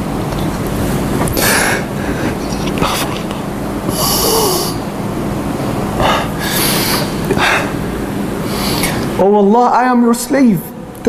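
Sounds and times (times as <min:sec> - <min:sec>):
faint low hum: 0:00.0 - 0:11.0
steady loud hiss: 0:00.0 - 0:11.0
man breathing and sniffing: 0:00.8 - 0:04.9, 0:06.0 - 0:09.2.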